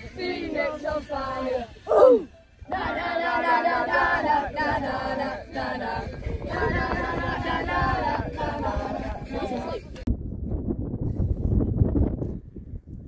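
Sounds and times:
group singing or chanting: 0.0 - 10.0.

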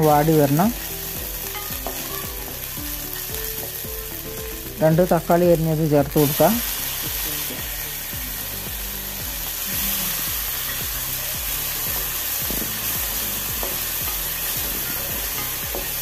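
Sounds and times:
vegetables sizzling in hot oil: 0.0 - 16.0.

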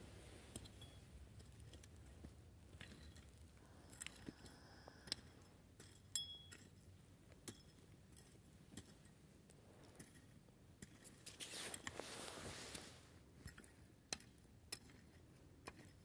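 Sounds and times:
small clicks and ticks: 1.4 - 6.7
soft scraping hiss: 11.1 - 13.2.

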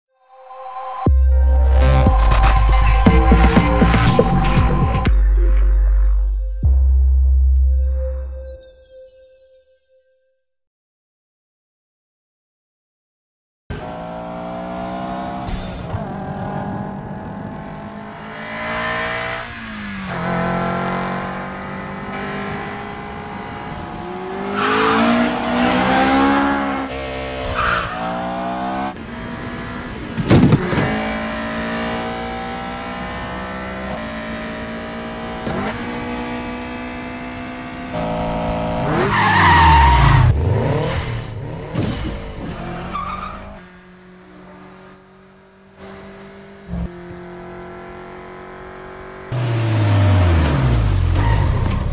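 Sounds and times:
car engines revving: 13.7 - 51.9.

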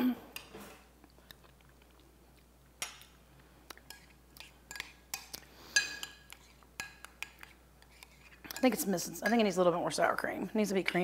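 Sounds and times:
spoon clinking against bowl: 4.7 - 9.5.

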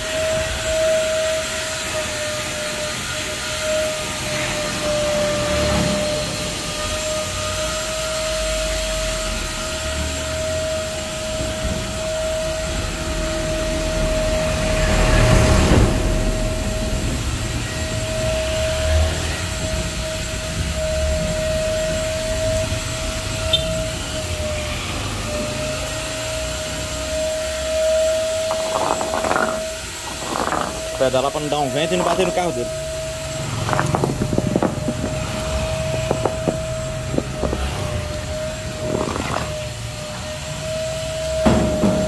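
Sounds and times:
vacuum cleaner sucking water: 25.2 - 41.8.

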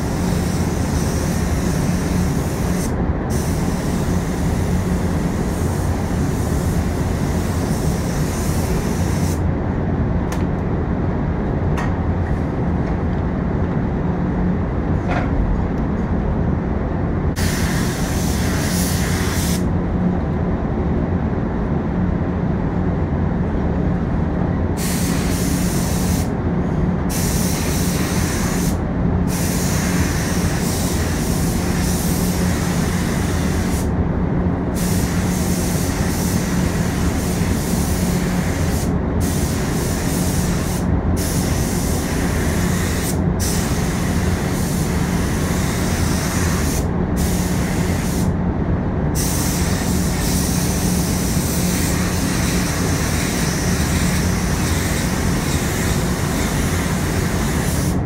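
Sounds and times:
spray gun hissing: 0.0 - 9.4, 17.4 - 19.7, 24.8 - 26.3, 27.1 - 33.9, 34.8 - 48.3, 49.2 - 58.0
steady low hum: 0.0 - 58.0.

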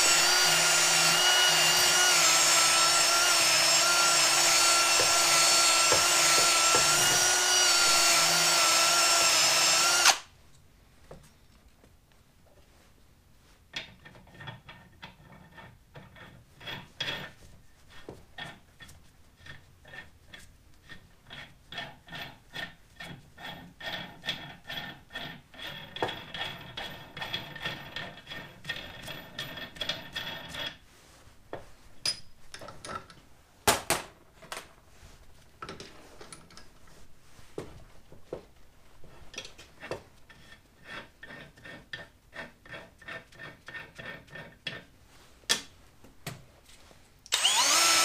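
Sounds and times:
nut spinning on bolt threads: 47.3 - 48.0.

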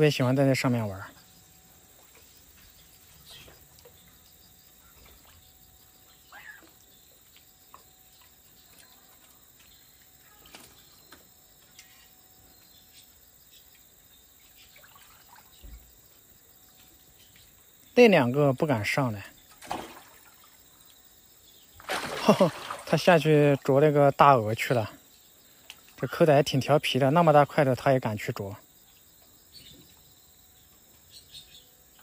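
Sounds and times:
thin constant tone: 0.0 - 19.6
low steady background hiss: 0.0 - 32.0
soft chirps and ticks: 0.6 - 18.3, 20.7 - 21.8, 23.6 - 32.0.

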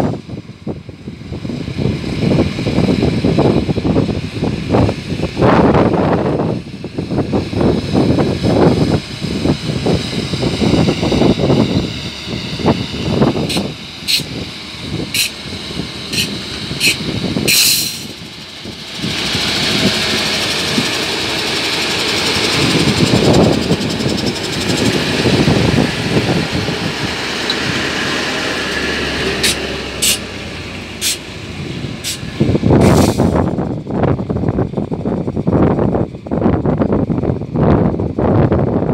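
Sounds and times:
diesel truck engine revving: 0.0 - 38.9
high hissing whine: 5.2 - 31.3
air hiss: 13.5 - 14.3, 15.1 - 15.4, 16.1 - 18.1, 29.4 - 30.2, 31.0 - 31.2.

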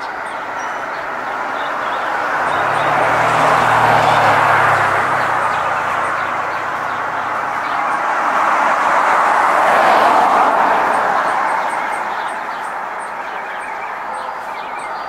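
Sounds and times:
vehicles passing on road: 0.0 - 15.0
low engine hum: 0.4 - 11.0.

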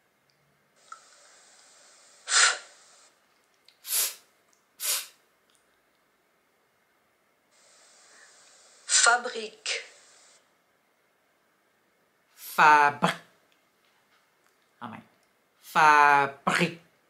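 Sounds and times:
voice pronouncing f sound: 12.4 - 13.3.

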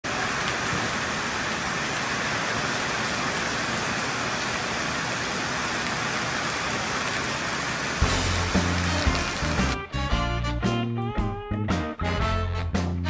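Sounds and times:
heavy rain on gravel: 0.0 - 9.8
runoff water splashing on gravel: 0.0 - 9.8.

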